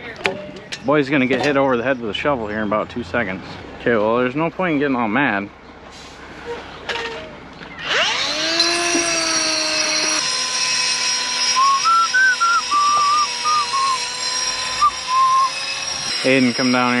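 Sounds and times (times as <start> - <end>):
angle grinder whine: 7.8 - 17.0
person whistling a tune: 11.5 - 14.1, 14.8 - 15.6.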